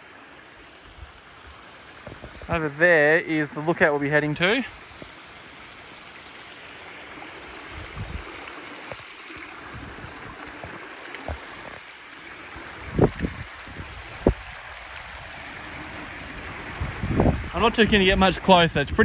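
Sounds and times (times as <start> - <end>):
water rushing over rock: 0.0 - 19.0
wind buffeting microphone: 7.7 - 11.8, 12.7 - 19.0.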